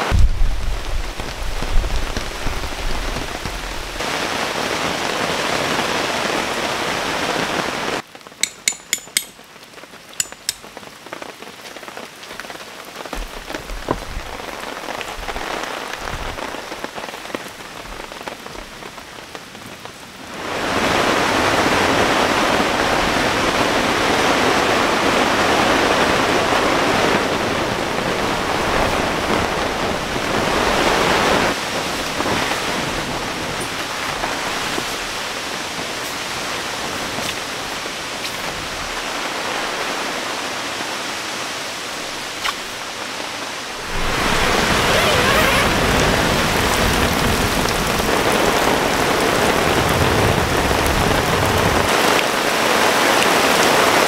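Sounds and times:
wind against tent fabric: 0.0 - 8.0, 13.0 - 19.0, 20.2 - 54.0
heavy rain on tent: 0.0 - 54.0
sharp clicks: 10.2 - 10.7.

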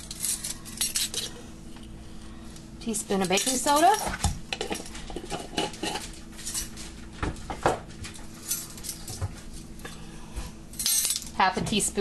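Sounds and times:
metal spoons and containers clinking: 3.1 - 6.8.

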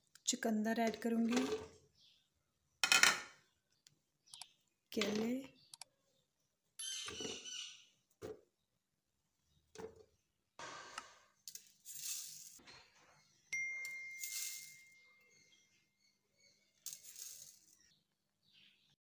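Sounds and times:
ringing ding: 13.6 - 15.3.

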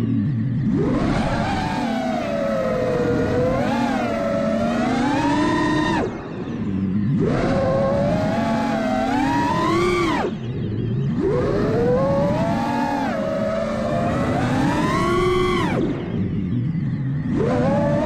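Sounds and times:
quadcopter motors and propellers whining: 0.0 - 18.0.

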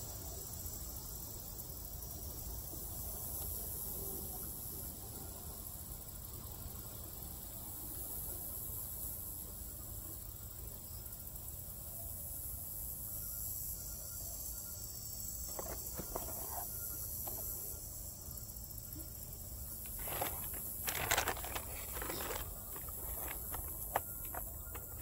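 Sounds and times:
steady high hiss: 0.0 - 25.0
paper bag crinkling: 15.5 - 16.6, 19.9 - 25.0
foam container rustling: 15.5 - 17.4, 19.8 - 25.0.

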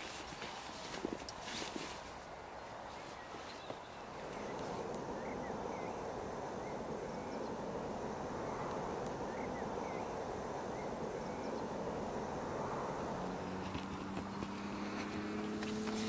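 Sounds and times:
outdoor hiss-like rumble: 0.0 - 16.0
faint bird chirps: 2.6 - 7.6, 8.4 - 11.8.

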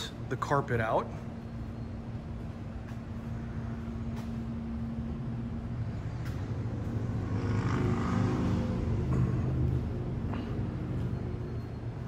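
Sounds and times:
low mechanical rumble with hum: 0.0 - 12.0.

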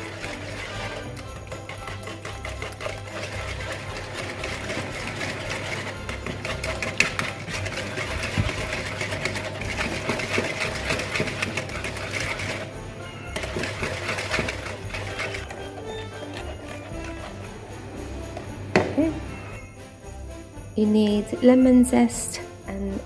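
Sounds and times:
wire whisk rattling in wooden bowl: 0.0 - 12.7, 13.4 - 17.7.

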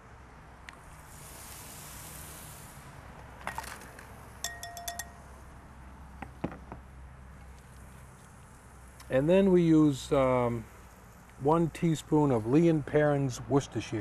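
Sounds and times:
utensil clinking on dishware: 4.4 - 5.2.

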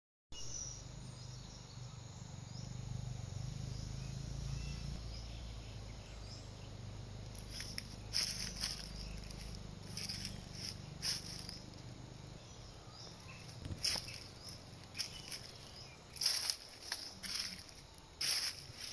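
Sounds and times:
bird chirps: 0.4 - 18.9
insect chirps: 0.4 - 18.9
low steady rumble: 0.8 - 18.9
dry leaves rustling: 7.2 - 18.9.

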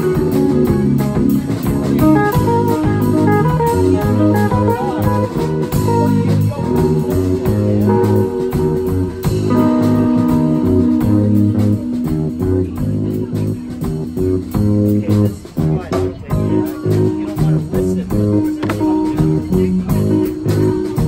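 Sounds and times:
drum kit beat: 0.0 - 21.0
electric bass line: 0.0 - 21.0
electric guitar: 0.0 - 21.0.

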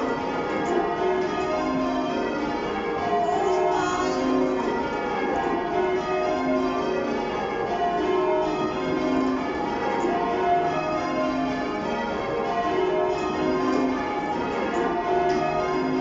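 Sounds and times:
church bells change ringing: 0.0 - 16.0.

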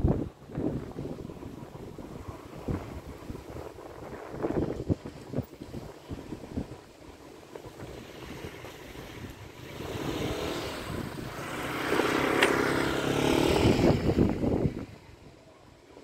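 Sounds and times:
wind buffeting microphone: 0.0 - 16.0
vehicle engine passing: 8.2 - 14.8.

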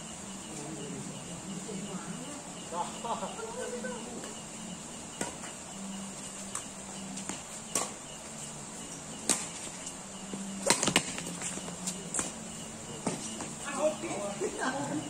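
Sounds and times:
high-pitched insect drone: 0.0 - 15.0
rackets hitting shuttlecock: 5.2 - 5.5, 7.2 - 8.0, 9.2 - 9.8, 10.6 - 12.4, 13.0 - 13.5.

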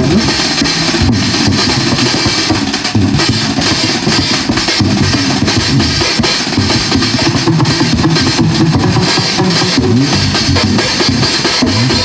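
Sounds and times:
drum and cymbal hits: 0.0 - 12.0
jazz band playing: 0.0 - 12.0.

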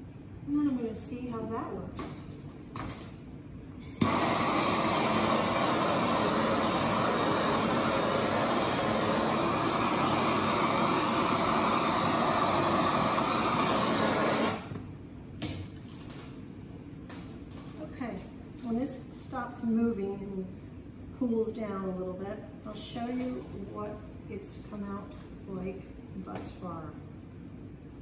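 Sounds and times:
blowtorch flame rushing: 3.8 - 14.7.

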